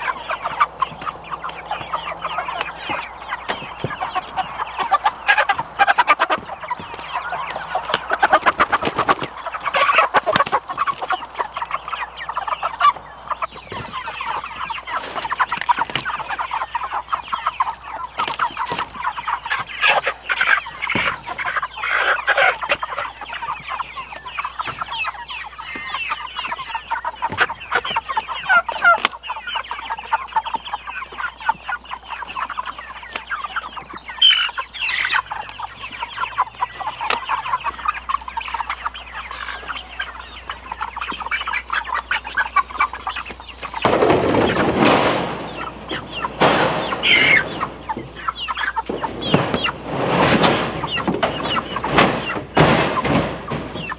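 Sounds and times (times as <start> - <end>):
chickens clucking and squawking: 0.0 - 53.9
sharp knocks: 43.8 - 53.9.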